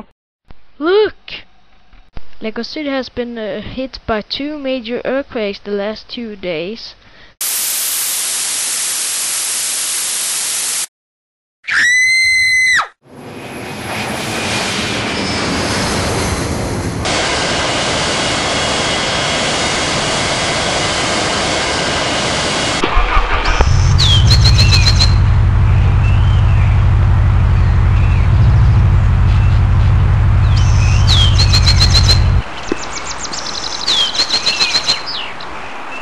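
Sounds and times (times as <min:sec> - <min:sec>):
jet airliner engines rushing: 0:13.1 - 0:32.5
motor vehicle engine rumble: 0:22.7 - 0:32.8
high chirps: 0:23.5 - 0:32.8, 0:33.7 - 0:35.2.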